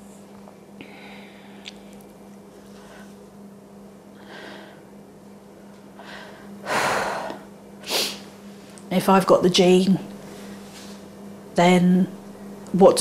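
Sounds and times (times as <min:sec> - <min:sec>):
woman breathing unsteadily: 0:00.8 - 0:01.9, 0:04.1 - 0:05.0, 0:05.9 - 0:08.3.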